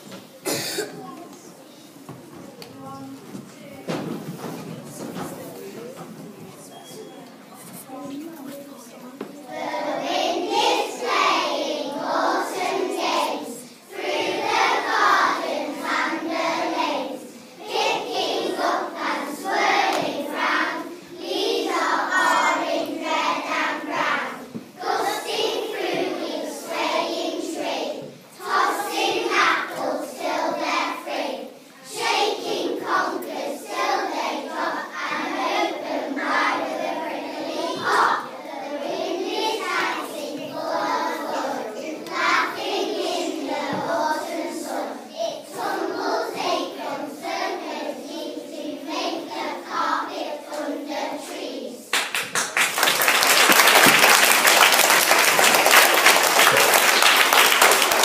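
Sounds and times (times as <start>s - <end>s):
children singing: 9.4s - 51.9s.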